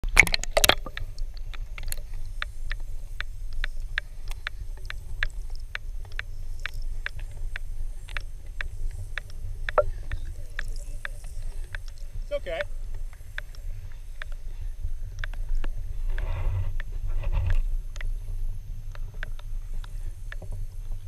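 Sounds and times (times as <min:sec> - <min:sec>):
water splash: 0:00.0 - 0:01.2
muffled underwater rumble: 0:00.0 - 0:21.0
sharp underwater clicks: 0:00.0 - 0:21.0.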